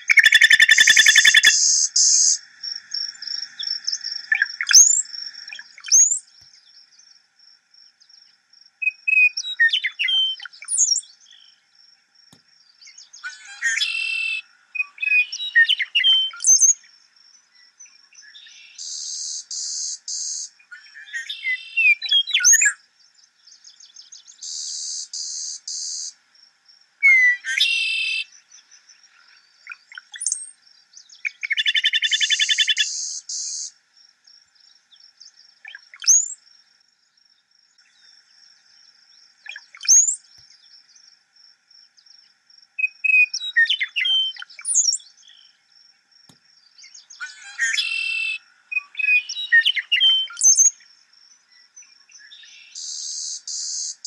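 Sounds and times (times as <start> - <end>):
faint high insect tone: 0.0 - 54.0
sparrow buzzy song: 0.0 - 54.0.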